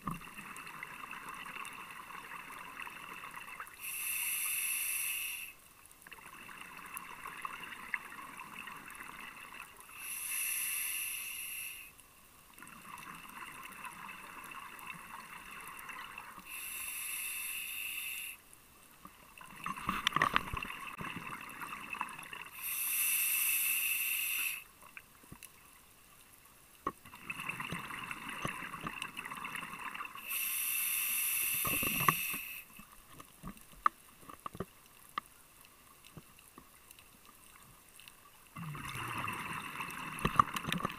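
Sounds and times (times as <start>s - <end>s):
diver breathing through regulator: 3.8s - 5.6s, 9.9s - 12.0s, 16.4s - 18.4s, 22.5s - 24.7s, 30.2s - 32.7s
exhaled bubbles rushing: 38.6s - 40.9s.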